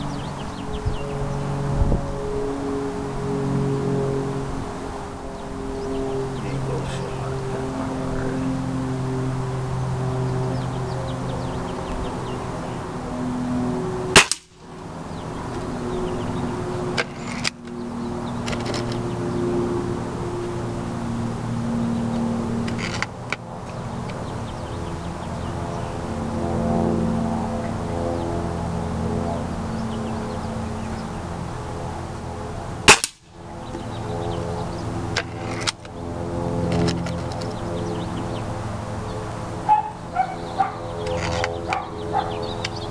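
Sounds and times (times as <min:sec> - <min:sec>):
low background hum: 0:00.0 - 0:42.9
air rifle shot crack: 0:14.2 - 0:14.6, 0:32.9 - 0:33.2.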